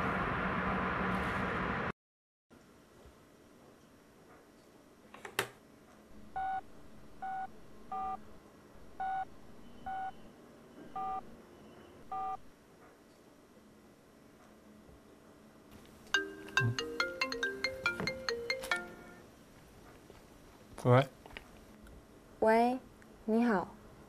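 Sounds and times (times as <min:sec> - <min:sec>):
phone keypad two-tone beeps: 0:11.0 - 0:11.2.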